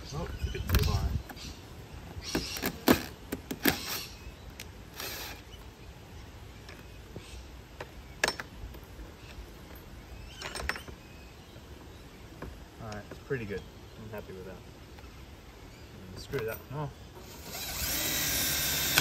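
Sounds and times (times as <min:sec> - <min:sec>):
cordless drill driving screws: 0:02.4 - 0:04.1, 0:04.9 - 0:05.5, 0:17.2 - 0:19.0.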